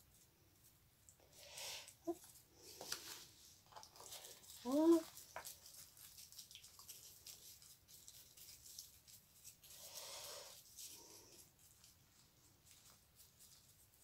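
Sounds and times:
soft rustle: 0:00.0 - 0:14.0
paintbrush ticks and scratches: 0:04.1 - 0:14.0.

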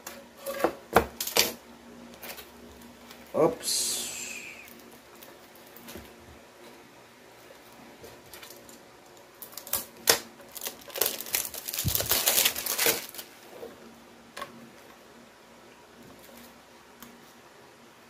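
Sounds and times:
plastic wrap crinkling and tearing: 0:08.2 - 0:13.4.

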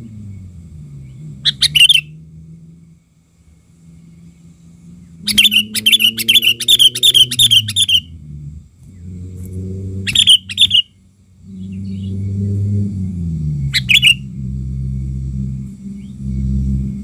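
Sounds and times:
low hum: 0:00.0 - 0:17.0
bird harsh chattering calls: 0:01.4 - 0:02.1, 0:05.2 - 0:08.1, 0:10.1 - 0:10.9, 0:13.7 - 0:14.2.

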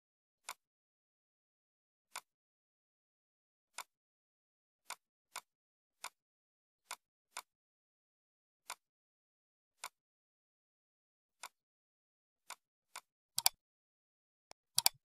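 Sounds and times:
computer mouse clicks: 0:13.0 - 0:13.6, 0:14.8 - 0:15.0.

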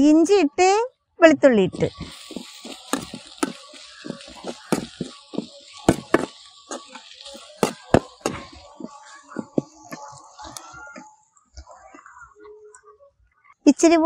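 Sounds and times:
hot oil sizzling: 0:01.8 - 0:10.6.

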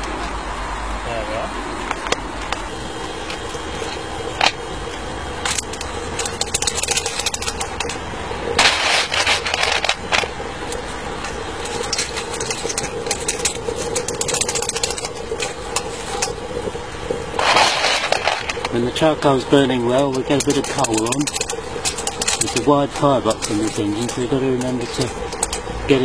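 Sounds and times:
electric fan humming: 0:00.0 - 0:26.0
metallic scraping and clattering: 0:05.4 - 0:26.0.

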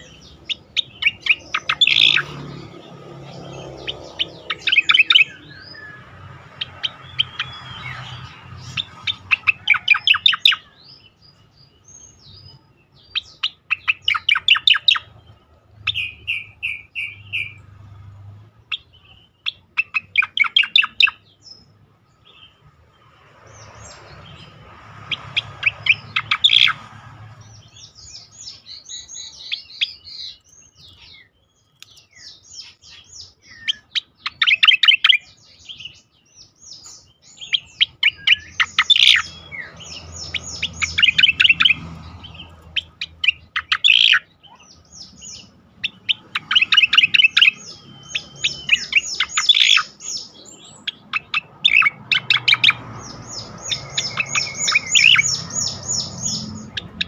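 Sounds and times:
bird singing clicks and trills: 0:00.0 - 0:22.6, 0:23.4 - 0:57.0.

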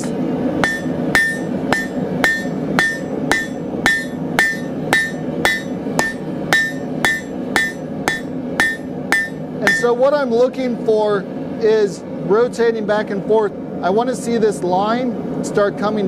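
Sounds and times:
hammer striking steel on anvil: 0:00.0 - 0:10.0.

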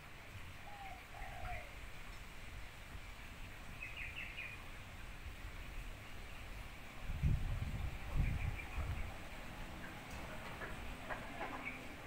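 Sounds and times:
low outdoor rumble: 0:00.0 - 0:12.0
dove cooing: 0:00.6 - 0:01.9
small birds chirping: 0:03.0 - 0:07.0, 0:07.6 - 0:12.0.

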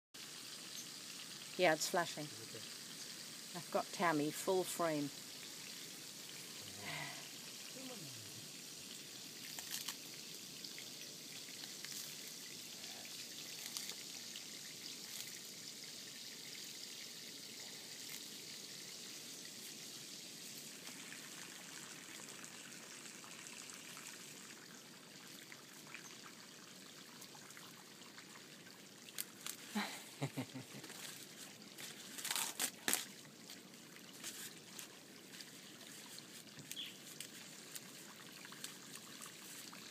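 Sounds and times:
water trickling: 0:00.2 - 0:39.9
tortoise chewing leaves: 0:04.7 - 0:16.8, 0:17.6 - 0:19.9, 0:28.7 - 0:39.9.

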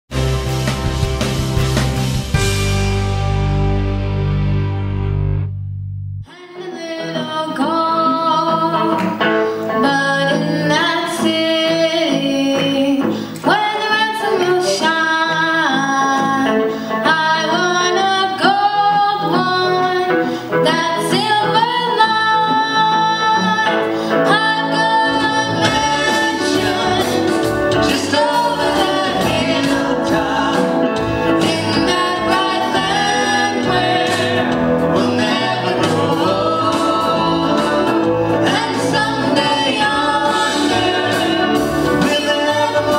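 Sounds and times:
live band with guitar: 0:00.1 - 0:42.9.

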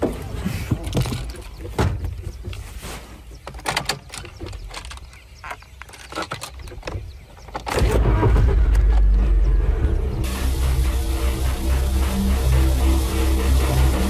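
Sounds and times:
low rumble: 0:07.8 - 0:14.0
deep house music with heavy bass: 0:09.4 - 0:14.0.

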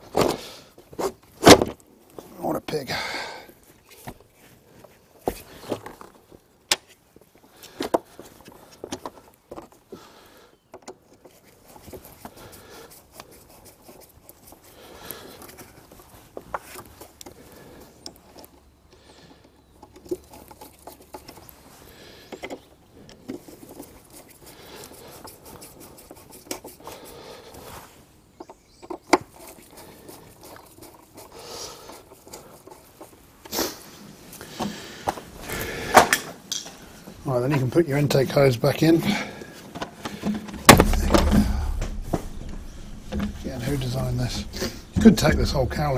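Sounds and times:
faint handling noise: 0:10.6 - 0:45.9
hard plastic clicks and knocks: 0:39.7 - 0:43.7.

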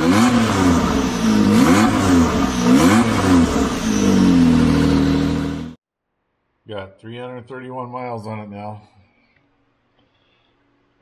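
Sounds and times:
engine revving: 0:00.0 - 0:05.8.

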